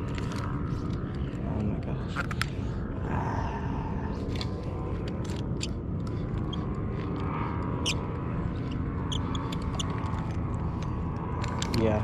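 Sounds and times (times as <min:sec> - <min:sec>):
steady low rumble: 0:00.0 - 0:12.0
fishing reel whirring: 0:05.2 - 0:10.8.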